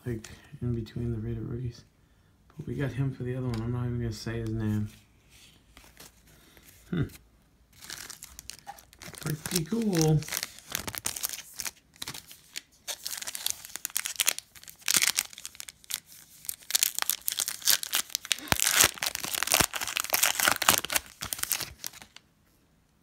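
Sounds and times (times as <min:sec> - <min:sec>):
foil wrapper tearing and crinkling: 0:07.8 - 0:22.2.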